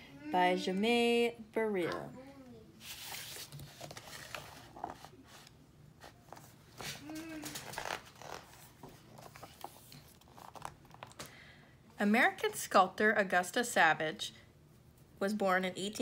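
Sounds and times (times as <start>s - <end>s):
book pages turning: 2.8s - 11.2s.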